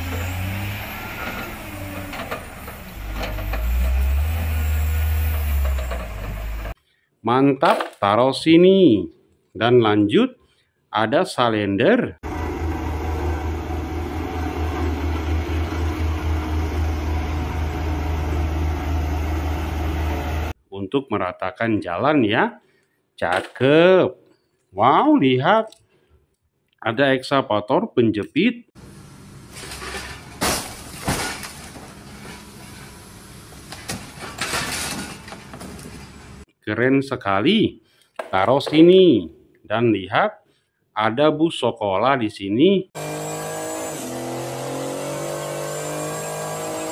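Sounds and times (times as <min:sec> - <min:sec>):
metal scraping crunch: 0:00.0 - 0:06.8, 0:29.4 - 0:36.4
road roller diesel engine drone: 0:00.0 - 0:06.8, 0:12.2 - 0:20.5, 0:28.8 - 0:30.4, 0:31.8 - 0:36.4
roller rolling over gravel: 0:29.3 - 0:36.4
car body crashing down: 0:29.5 - 0:32.6, 0:33.7 - 0:35.8.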